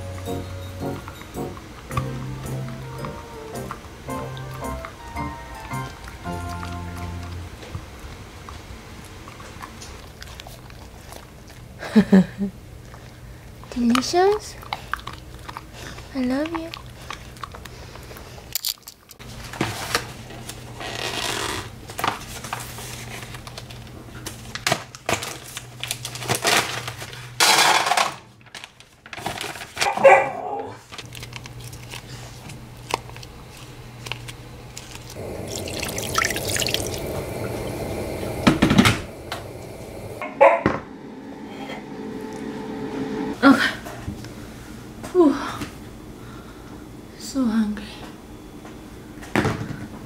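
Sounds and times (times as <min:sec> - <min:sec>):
low steady hum: 0:00.0 - 0:19.4, 0:31.0 - 0:50.0
water running at sink: 0:35.1 - 0:40.2.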